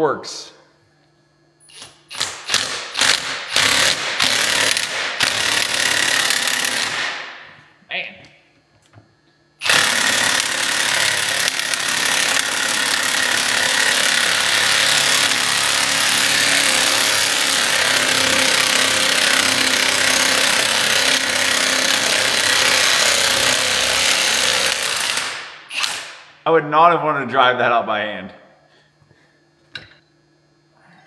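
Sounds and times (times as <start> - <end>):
cordless impact wrench hammering: 1.7 - 7.4, 9.6 - 26.2.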